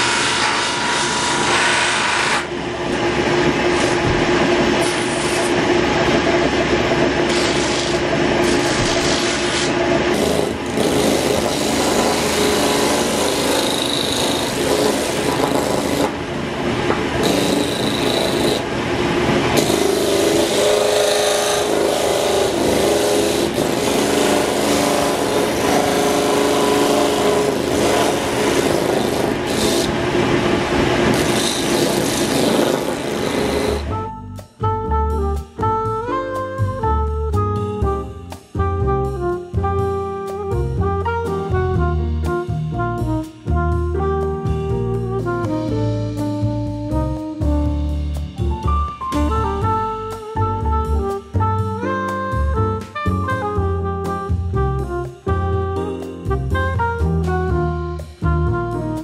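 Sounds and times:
wood grinding on sanding disc: 9.0s - 16.1s, 17.2s - 18.6s, 31.1s - 33.9s.

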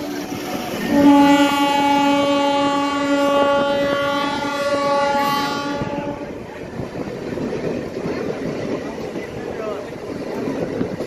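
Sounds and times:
train horn blast: 0.8s - 6.4s.

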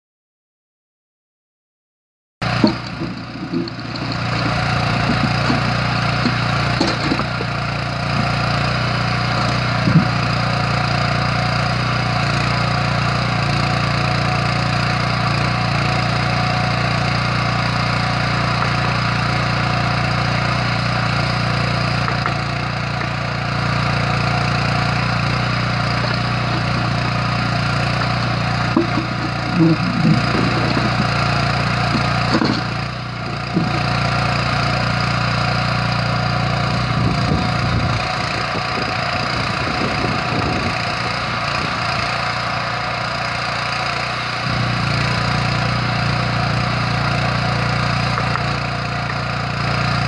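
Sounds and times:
petrol engine running under load: 2.4s - 50.0s
sharp knocks: 2.6s - 8.3s, 28.0s - 31.2s, 31.9s - 34.0s.

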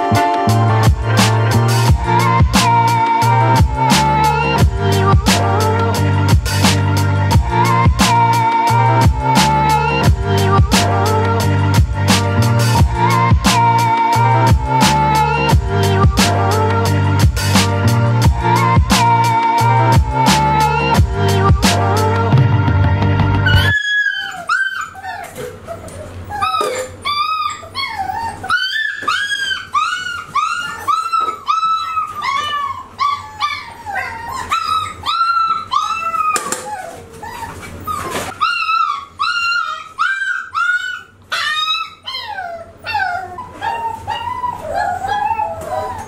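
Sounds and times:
music: 0.0s - 23.7s
puppies whining and yelping: 5.5s - 15.6s, 23.3s - 46.0s.

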